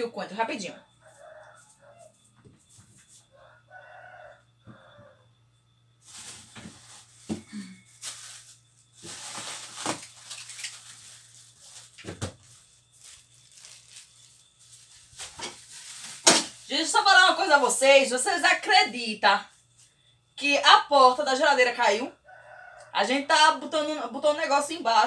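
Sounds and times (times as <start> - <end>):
rooster crowing: 0.9 - 2.4, 3.2 - 5.4, 22.2 - 23.1.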